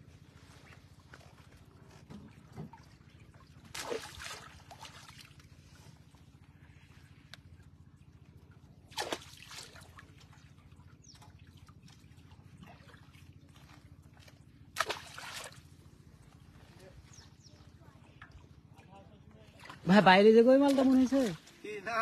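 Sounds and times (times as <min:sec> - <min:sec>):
water splashes: 0:00.0 - 0:22.0
water drips and trickles: 0:00.5 - 0:15.8.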